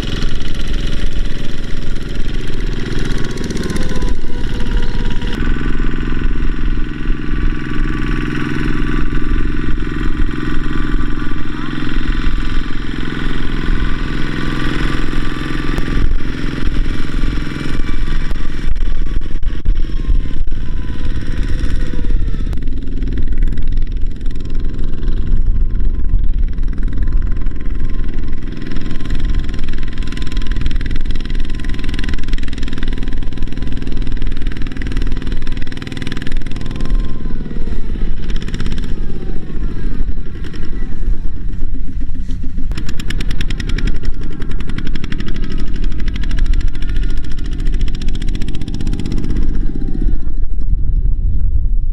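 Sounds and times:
diesel tractor engine running: 0:00.0 - 0:51.4.

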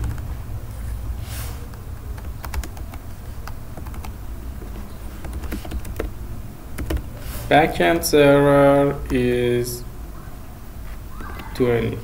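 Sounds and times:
low steady hum: 0:00.0 - 0:12.0
keyboard typing clicks: 0:02.2 - 0:04.2, 0:05.2 - 0:06.1.

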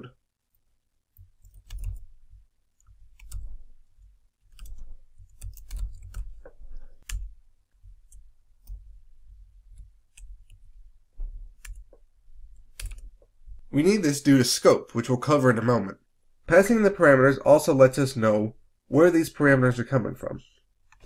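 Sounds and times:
computer keyboard key clicks: 0:01.2 - 0:02.0, 0:04.5 - 0:07.3, 0:12.7 - 0:13.1.

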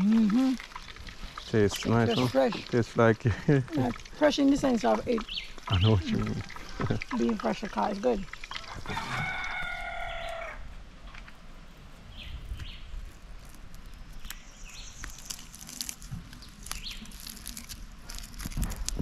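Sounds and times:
birds chirping: 0:00.0 - 0:10.6, 0:14.1 - 0:17.6
crackly scraping of charred skin: 0:08.3 - 0:19.0.

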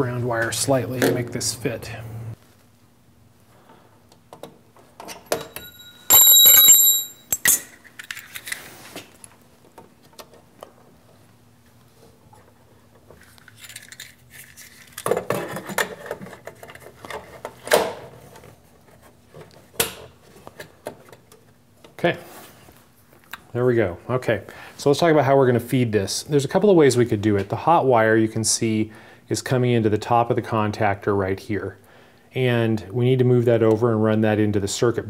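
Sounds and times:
loud ringing tone: 0:05.4 - 0:07.4
clicks and rattles of handling: 0:13.0 - 0:19.7.

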